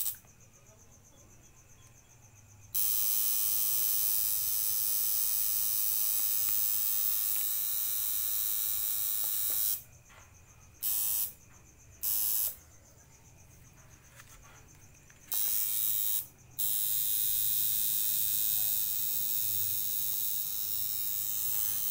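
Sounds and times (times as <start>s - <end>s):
tattoo machine buzzing: 0.0s - 0.2s, 2.7s - 9.8s, 10.8s - 11.4s, 12.0s - 12.6s, 15.3s - 21.9s.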